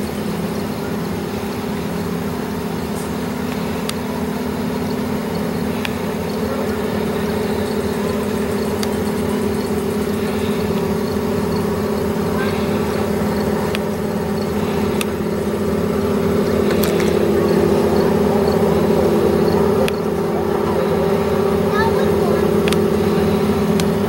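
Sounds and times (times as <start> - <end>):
engine humming steadily: 0.0 - 24.0
faint ticks: 2.8 - 20.1, 22.5 - 24.0.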